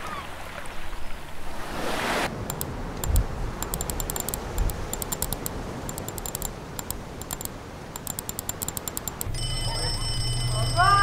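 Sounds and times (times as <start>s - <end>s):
keyboard key clicks: 2.5s - 9.3s.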